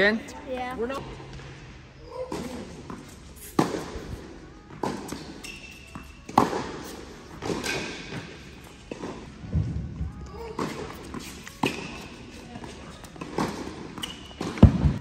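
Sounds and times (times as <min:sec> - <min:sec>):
tennis ball hits and bounces: 0:02.3 - 0:04.0, 0:04.8 - 0:09.2.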